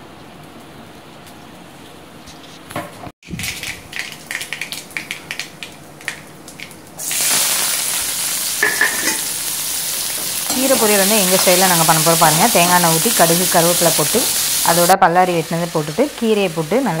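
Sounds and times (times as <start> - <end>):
hot oil crackling and popping: 0.2 - 17.0
onions sizzling in oil: 3.5 - 17.0.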